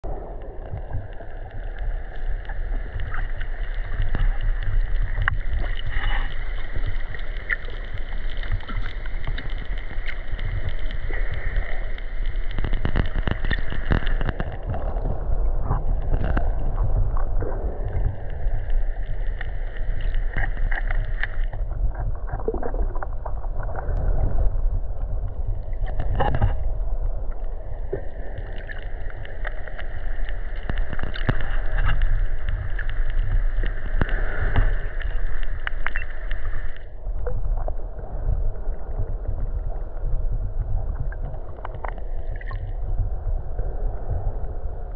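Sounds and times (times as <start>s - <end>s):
underwater rumble of water: 0.0s - 44.9s
small clicks: 1.1s - 15.1s.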